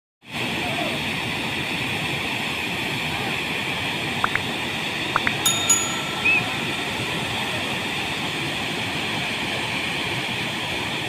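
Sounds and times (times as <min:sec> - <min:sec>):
water rushing down spillway: 0:00.3 - 0:11.0
click and bell-like chime: 0:05.2 - 0:07.4.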